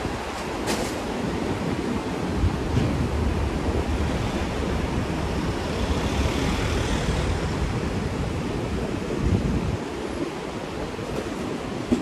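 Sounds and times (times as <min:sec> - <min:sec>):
traffic rumble: 0:01.9 - 0:10.0.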